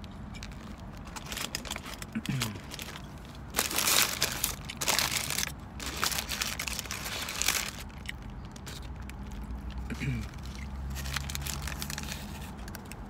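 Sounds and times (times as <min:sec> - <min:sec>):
paper wrapper crinkling: 0:00.4 - 0:13.0.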